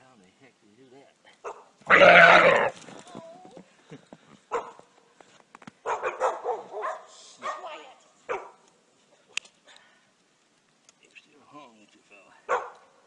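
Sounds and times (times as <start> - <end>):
deer distress bawl: 1.9 - 2.8.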